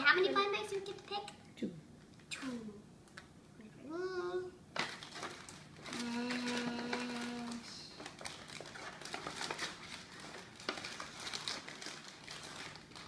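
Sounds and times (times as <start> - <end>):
paper and foil rustling: 4.8 - 13.0
child humming: 5.9 - 7.9.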